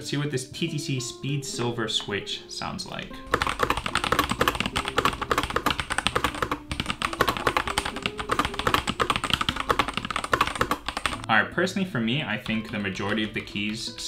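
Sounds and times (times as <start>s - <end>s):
mechanical keyboard clacks: 3.3s - 11.3s, 12.4s - 14.0s.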